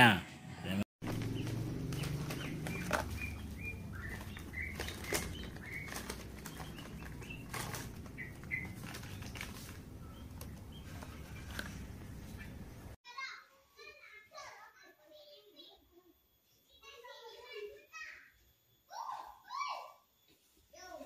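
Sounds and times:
cardboard box rustling: 1.0 - 12.4.

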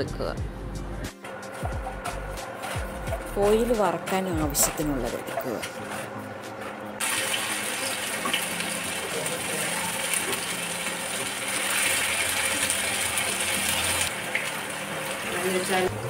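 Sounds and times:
chicken sizzling in hot oil: 7.0 - 15.9.

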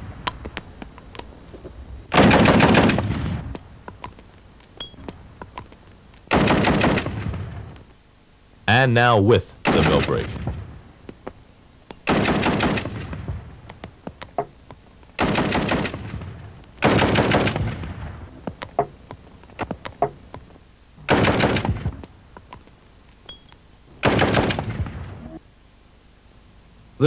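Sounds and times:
automatic rifle bursts: 2.1 - 3.2, 15.2 - 16.1, 16.8 - 18.7.

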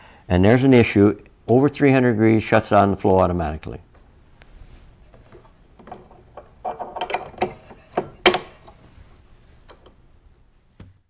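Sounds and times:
metallic clicks and rattles: 5.8 - 8.8.

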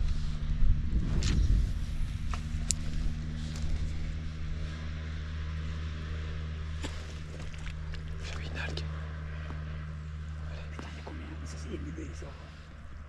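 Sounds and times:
distant engine humming: 0.0 - 13.0.

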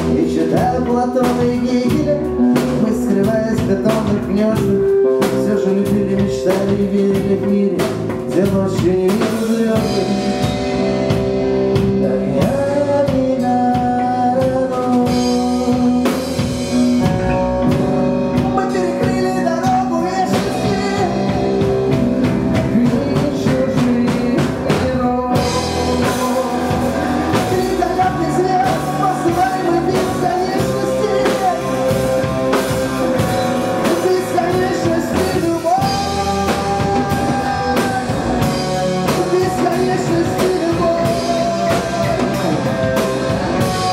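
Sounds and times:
bass guitar: 0.0 - 43.9
drum kit: 0.0 - 43.9
electric guitar: 0.0 - 43.9.

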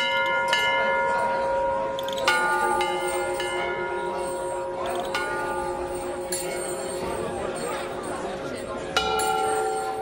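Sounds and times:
metal temple bells ringing: 0.0 - 10.0.

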